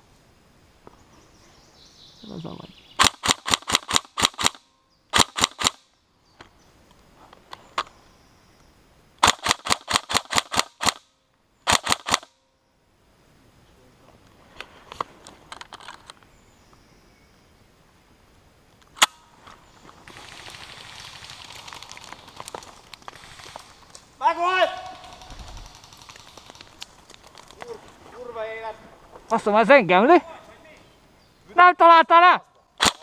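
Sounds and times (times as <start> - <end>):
airsoft gun rapid firing: 3.0 - 5.8, 9.2 - 11.0, 11.7 - 12.3, 20.1 - 22.2, 23.1 - 23.8, 24.7 - 26.8, 32.8 - 33.0
sharp crack: 3.0 - 5.9, 9.2 - 12.4, 18.8 - 28.3, 32.8 - 33.0
faint clicks: 21.5 - 24.1, 25.0 - 28.0.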